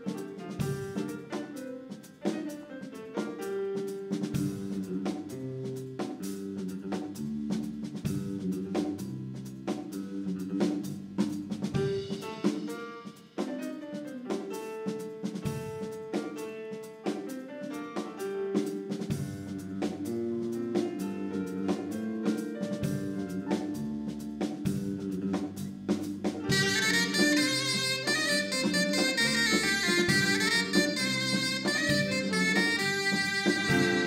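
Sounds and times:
drum hits: 0:10.7 - 0:13.6, 0:20.8 - 0:34.0
wind instrument melody: 0:26.5 - 0:34.0.

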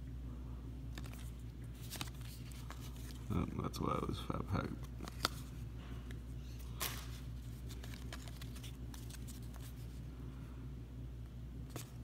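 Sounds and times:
low hum: 0:00.0 - 0:12.0
cards rustling and clicking: 0:00.9 - 0:03.8, 0:04.5 - 0:10.0, 0:11.6 - 0:12.0.

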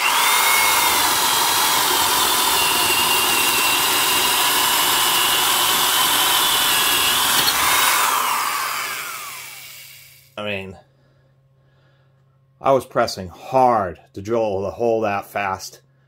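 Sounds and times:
electric drill boring into wood: 0:00.0 - 0:10.3.

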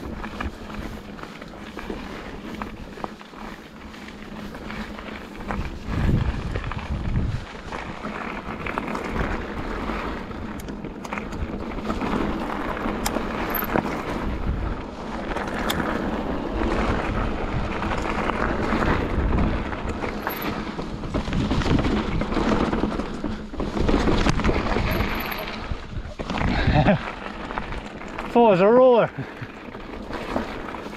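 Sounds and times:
bike clicks and knocks: 0:00.0 - 0:28.4, 0:29.2 - 0:30.9
bike tyres rolling over gravel: 0:00.0 - 0:30.9
wind buffeting microphone: 0:04.6 - 0:28.3.

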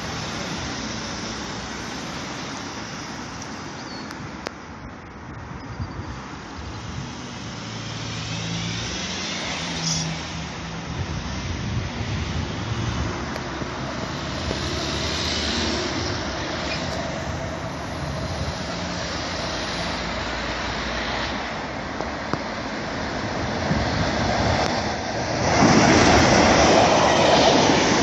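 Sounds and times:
diesel locomotive engine drone: 0:00.0 - 0:28.0
road traffic: 0:00.0 - 0:28.0.

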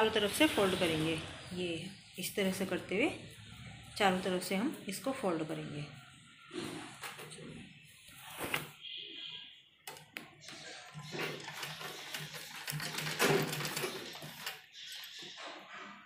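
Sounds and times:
sewing machine clatter: 0:10.5 - 0:15.2.

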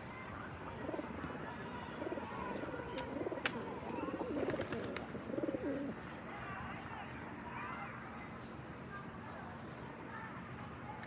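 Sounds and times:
pigeons cooing: 0:01.9 - 0:06.0.

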